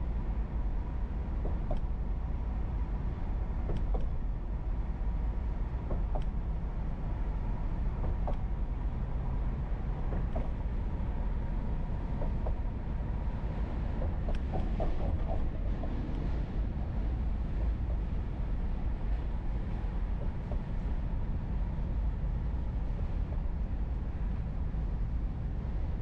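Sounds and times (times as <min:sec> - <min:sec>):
car road and tyre rumble: 0:00.0 - 0:26.0
faint clicks and ticks: 0:01.4 - 0:01.9, 0:03.6 - 0:04.2, 0:08.0 - 0:08.5, 0:14.0 - 0:16.2.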